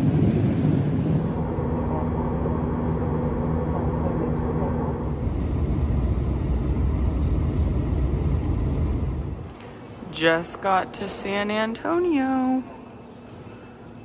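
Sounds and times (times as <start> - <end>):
airliner cabin engine roar: 0.0 - 11.0
droning hum: 0.0 - 14.0.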